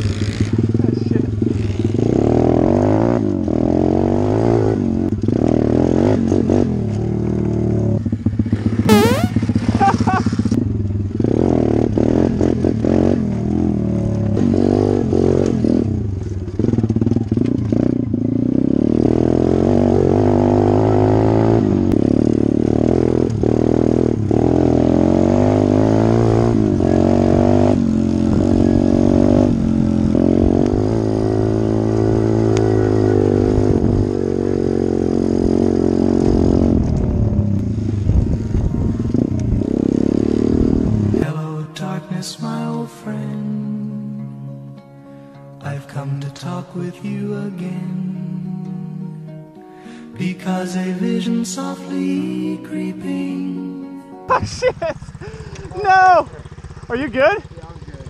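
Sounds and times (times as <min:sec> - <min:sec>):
small motorbike engine revving: 0:08.0 - 0:10.6, 0:54.6 - 0:58.0.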